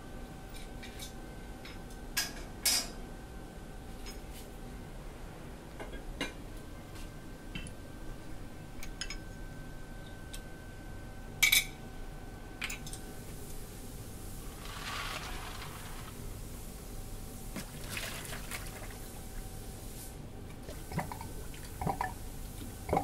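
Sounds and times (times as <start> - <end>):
faint steady hum: 0.0 - 23.0
plastic bucket rustling scrape: 14.4 - 16.5.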